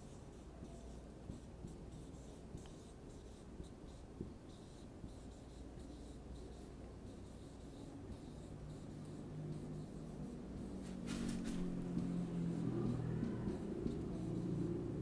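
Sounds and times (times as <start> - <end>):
marker squeaking on whiteboard: 0.0 - 15.0.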